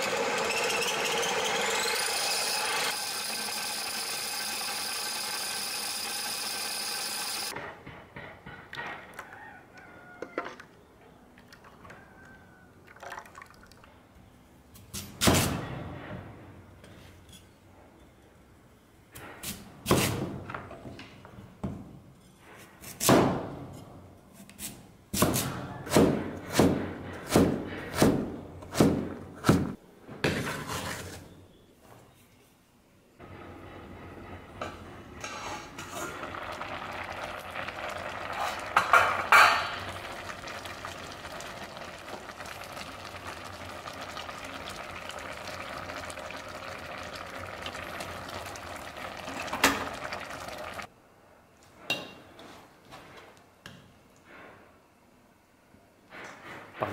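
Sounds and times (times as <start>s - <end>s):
grinding mill motor humming: 0.0s - 7.5s
pieces scraped into steel bowl: 30.2s - 31.4s.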